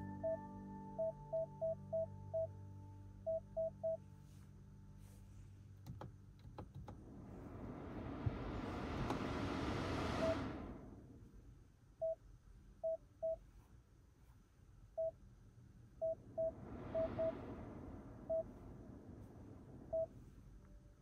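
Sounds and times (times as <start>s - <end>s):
blower fan air rushing: 6.6s - 11.7s, 16.0s - 21.0s.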